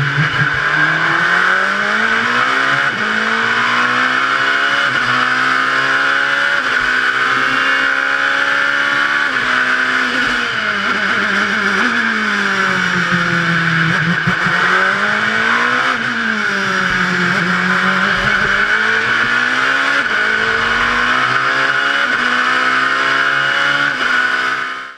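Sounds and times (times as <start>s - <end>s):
race car engine revving and shifting: 0.0s - 24.9s
high rushing noise: 16.9s - 23.1s.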